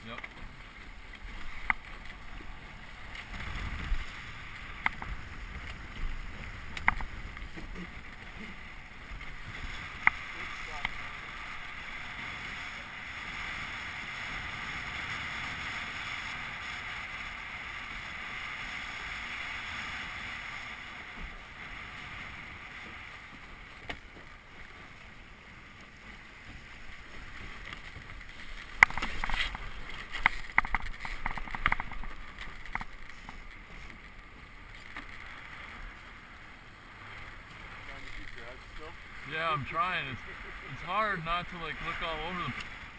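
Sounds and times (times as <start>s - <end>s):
water rushing along a boat hull: 0.0s - 42.9s
wind on microphone: 1.2s - 23.5s
sharp clicks and knocks: 30.2s - 34.0s.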